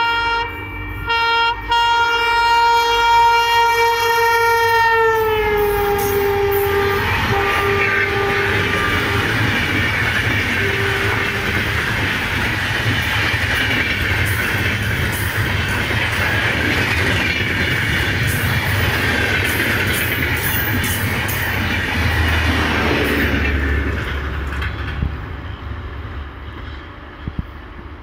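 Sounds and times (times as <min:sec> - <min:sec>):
train horn: 0:00.0 - 0:11.8
train rumble and wheel-on-rail noise: 0:00.0 - 0:28.0
wheel clacks: 0:08.6 - 0:22.4.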